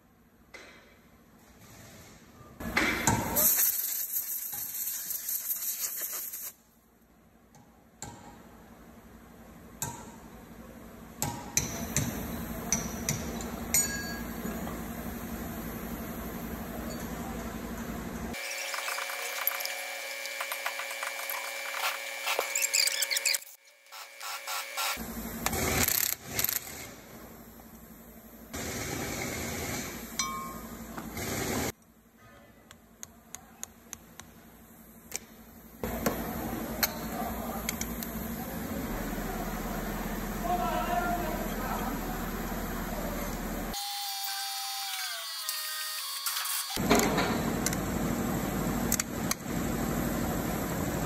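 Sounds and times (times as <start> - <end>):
impact wrench running: 18.3 - 27.0.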